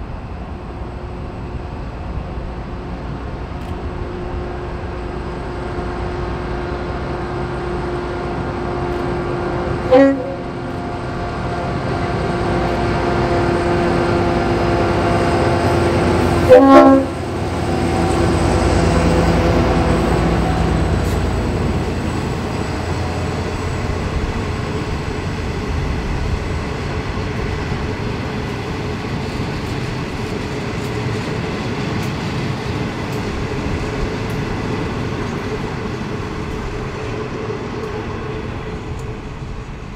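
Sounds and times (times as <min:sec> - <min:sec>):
diesel locomotive engine running: 0:00.0 - 0:39.9
train horn blasts: 0:08.0 - 0:17.4.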